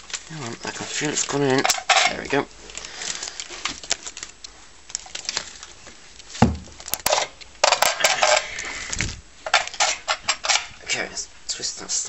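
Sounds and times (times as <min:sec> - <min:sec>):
metal parts clinking and knocking: 0:01.0 - 0:02.4, 0:06.8 - 0:08.6, 0:09.4 - 0:10.8
dull thump: 0:06.4 - 0:06.8.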